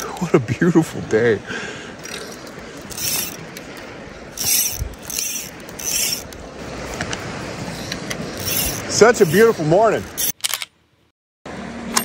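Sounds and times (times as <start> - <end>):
fishing line hissing pulls: 2.0 - 6.4, 7.6 - 10.4.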